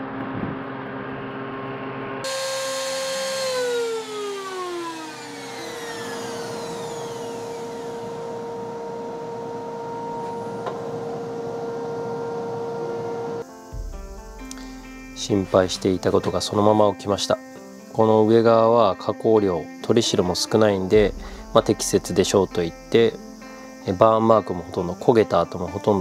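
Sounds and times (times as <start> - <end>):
shop vacuum running: 2.2 - 13.4
router motor whining: 2.3 - 13.4.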